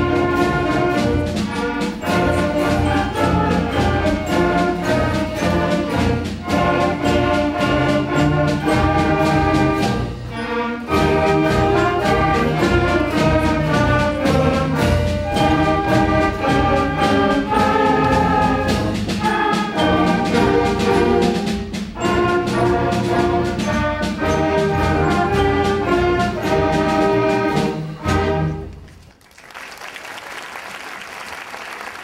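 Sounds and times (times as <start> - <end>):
concert band playing: 0.0 - 28.9
audience applause: 29.0 - 32.0.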